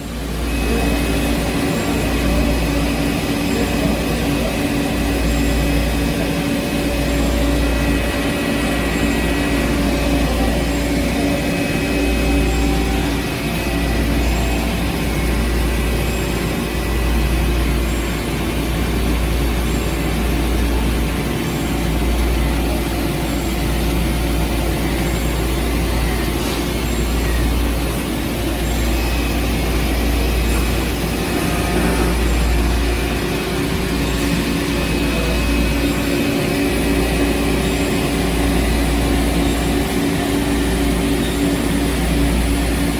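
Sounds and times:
lathe running with coolant: 0.0 - 42.9.

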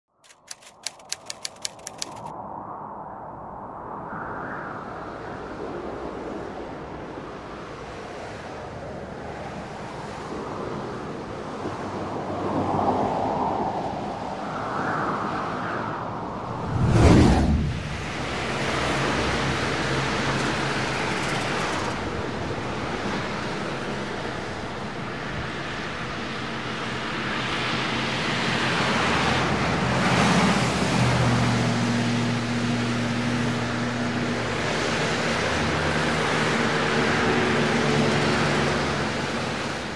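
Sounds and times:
highway traffic roar: 0.1 - 2.3, 4.8 - 39.9
loud whoosh: 16.4 - 19.2.

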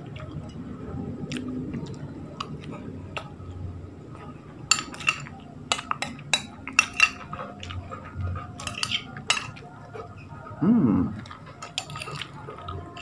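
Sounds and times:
metal spoon clinking on bowl: 4.7 - 7.3, 8.6 - 9.6, 11.6 - 13.0.

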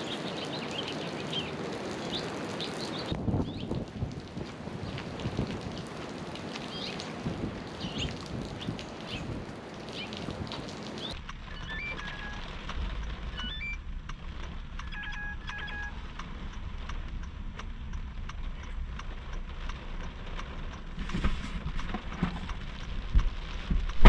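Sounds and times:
rain tapping on a car: 0.0 - 24.0
low steady rumble: 11.2 - 24.0
short electronic beeps: 11.5 - 12.5, 13.3 - 13.8, 14.8 - 16.0.

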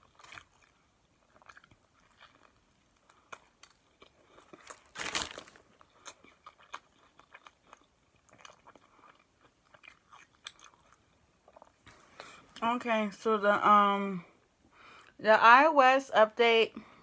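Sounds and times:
chewing clicks and crackles: 0.0 - 5.2, 5.8 - 11.9
bread crunching in a bite: 0.0 - 11.8.

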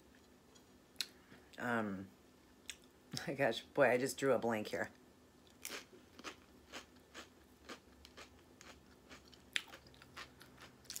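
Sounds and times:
person chewing crisp chips: 5.4 - 11.0.

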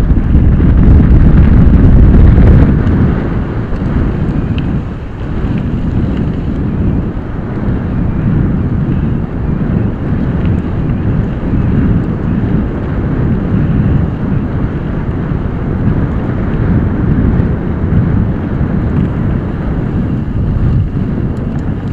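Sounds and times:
wind buffeting microphone: 0.0 - 21.9.

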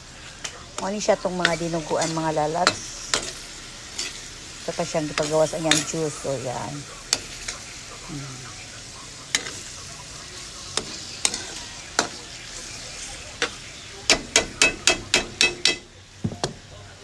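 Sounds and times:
meat sizzling in a wok: 0.0 - 17.0
metal spoon clinking on pan: 10.8 - 12.2, 13.4 - 15.9.

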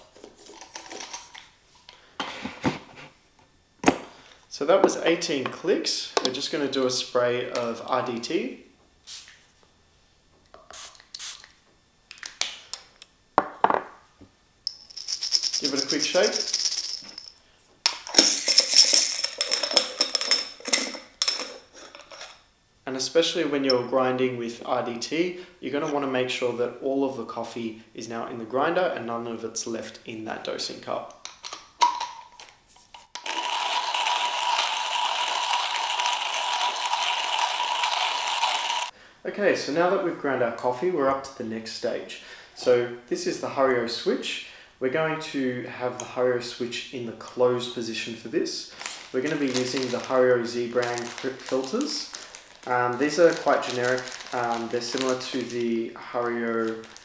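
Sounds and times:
spray bottle hissing puffs: 10.7 - 11.5
coffee beans rattling: 14.7 - 17.4, 18.0 - 22.4, 33.0 - 38.9, 48.7 - 57.0.

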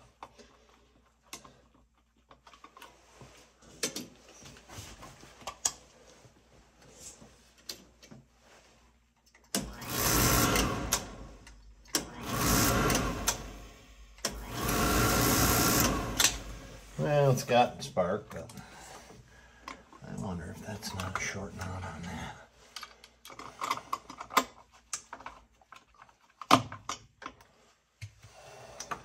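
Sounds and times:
oil burner motor buzzing: 9.6 - 16.8.

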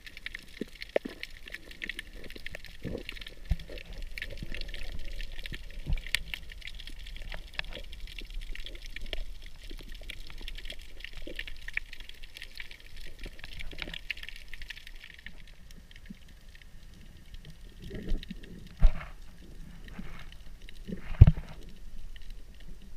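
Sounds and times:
sharp clicks and crackles: 0.0 - 22.9
underwater moving water rumble: 0.0 - 22.9.

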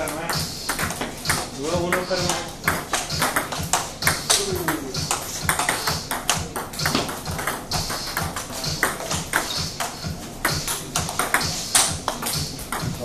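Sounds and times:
table tennis ball clicking: 0.0 - 10.0.

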